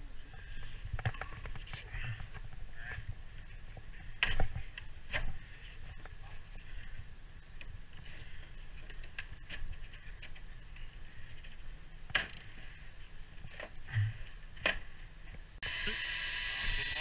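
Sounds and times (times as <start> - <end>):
cordless drill on sheet metal: 15.6 - 17.0.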